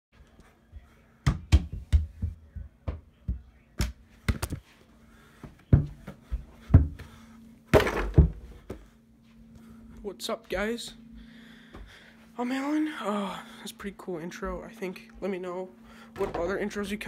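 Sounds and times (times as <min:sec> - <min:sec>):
faint steady hum: 0:00.2 - 0:17.0
thumps and knocks: 0:01.2 - 0:04.6.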